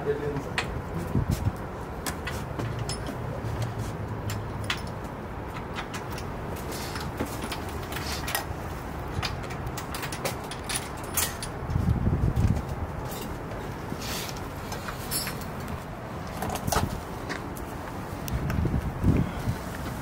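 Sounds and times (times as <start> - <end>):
outdoor background noise: 0.0 - 20.0
small metal parts clinking: 4.3 - 11.7, 14.8 - 15.7.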